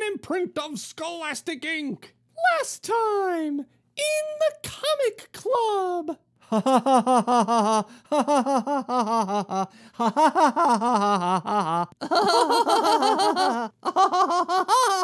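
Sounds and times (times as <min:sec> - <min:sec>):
cartoon voices laughing: 0:06.5 - 0:15.0.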